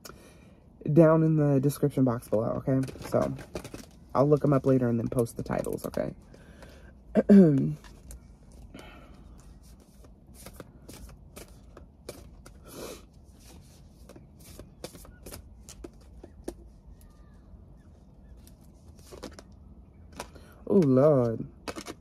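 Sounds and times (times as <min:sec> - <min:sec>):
cards shuffling: 0:07.5 - 0:17.2, 0:18.3 - 0:22.0.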